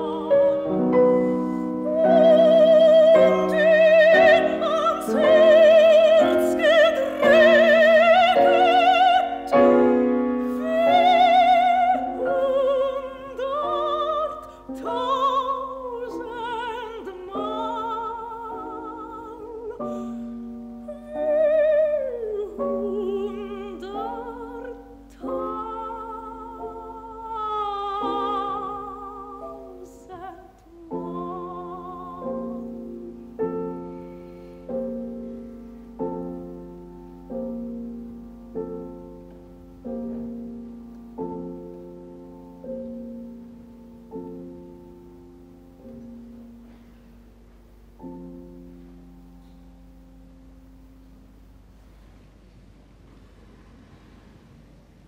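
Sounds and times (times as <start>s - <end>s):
soprano singing with vibrato: 0.0s - 34.1s
piano accompaniment: 0.0s - 55.0s.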